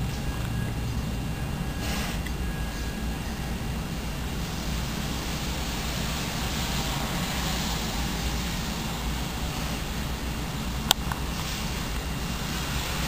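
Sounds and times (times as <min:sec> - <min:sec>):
hiss: 0:01.6 - 0:13.0.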